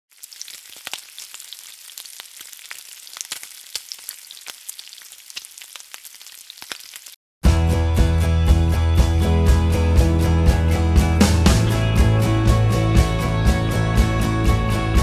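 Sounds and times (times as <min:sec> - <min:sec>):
food sizzling in hot oil: 0:00.1 - 0:07.2
oil popping and crackling: 0:00.1 - 0:07.2.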